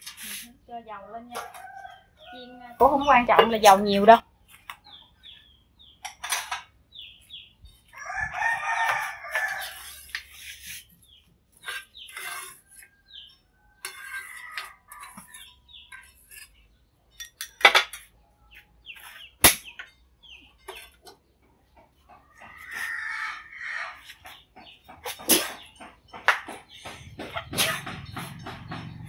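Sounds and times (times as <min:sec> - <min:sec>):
chickens clucking: 0:18.6 - 0:29.0.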